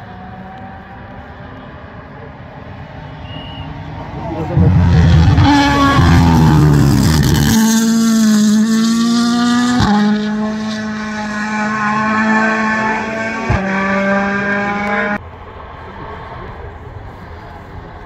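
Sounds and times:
rally car engine revving: 0:03.0 - 0:15.2.

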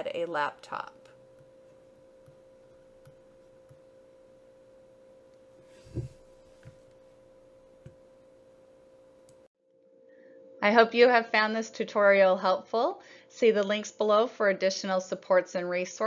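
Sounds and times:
steady high hum: 0:00.0 - 0:12.0
dull thump: 0:05.8 - 0:06.2.

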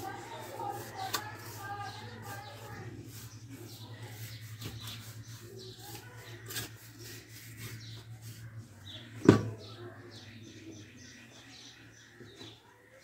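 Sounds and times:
scraping in dry soil: 0:00.0 - 0:09.0.

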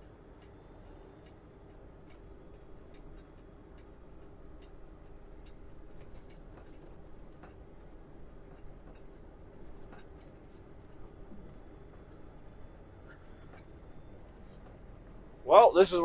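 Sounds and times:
truck engine drone: 0:00.0 - 0:16.0.

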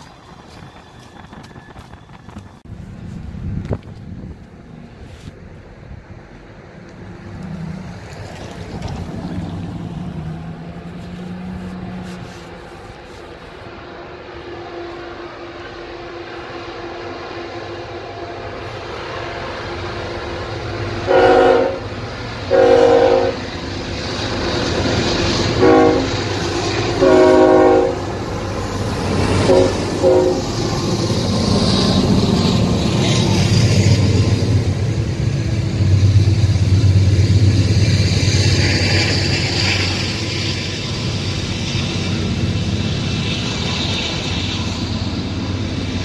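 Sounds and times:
freight train rumbling past: 0:00.0 - 0:46.0
locomotive air horn blasts: 0:21.0 - 0:21.9, 0:22.5 - 0:23.4, 0:25.6 - 0:26.2, 0:26.9 - 0:28.1, 0:29.4 - 0:30.6.

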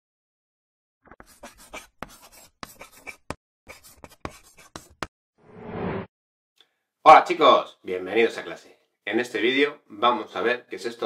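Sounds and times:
chalk scratching on blackboard: 0:01.1 - 0:05.1
chalk tapping: 0:01.2 - 0:05.1.

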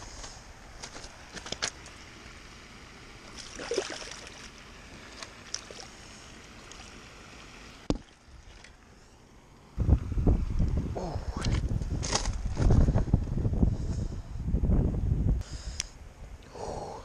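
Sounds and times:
stones crunching underfoot: 0:00.2 - 0:02.0
shallow water sloshing: 0:03.3 - 0:07.0, 0:07.9 - 0:08.8.

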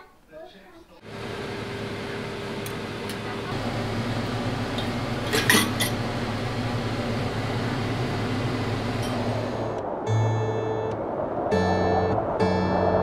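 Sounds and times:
pot hissing and humming: 0:01.0 - 0:09.8
metal cookware clinking: 0:05.2 - 0:06.0.

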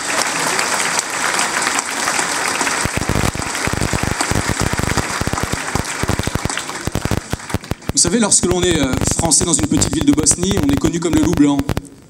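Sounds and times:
sharp close claps: 0:00.0 - 0:08.0
audience applauding: 0:00.0 - 0:11.6.

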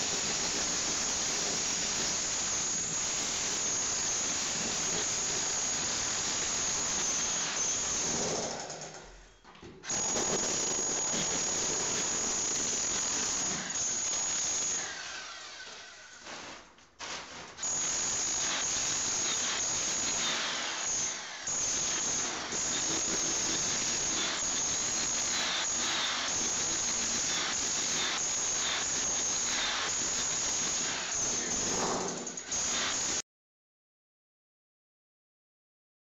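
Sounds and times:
electric chipping hammer rattling: 0:09.9 - 0:15.8, 0:17.0 - 0:33.2.

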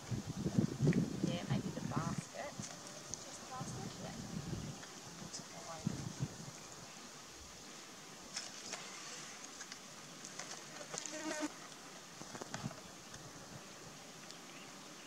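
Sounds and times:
insects buzzing: 0:00.0 - 0:15.0
branches and basket knocks and rustles: 0:08.3 - 0:12.9.

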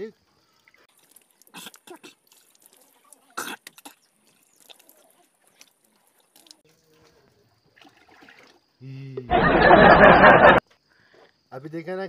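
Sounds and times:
water dripping into pot: 0:00.6 - 0:06.7
man spitting and splashing: 0:00.9 - 0:06.6.

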